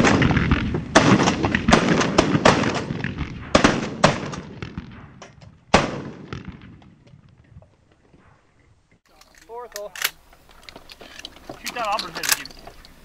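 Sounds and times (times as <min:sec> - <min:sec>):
shotguns firing: 0:00.0 - 0:06.9.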